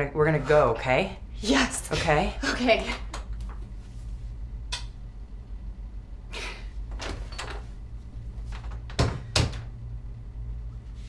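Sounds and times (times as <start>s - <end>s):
door closing thuds: 8.5s - 9.7s.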